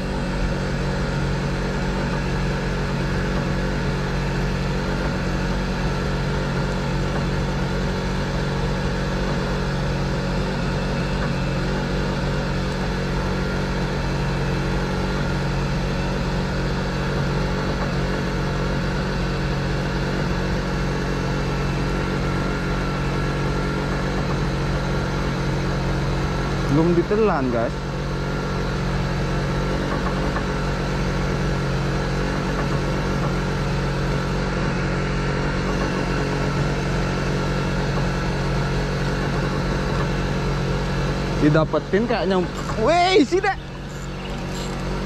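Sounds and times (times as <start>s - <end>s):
boat engine running steadily: 0.0s - 45.0s.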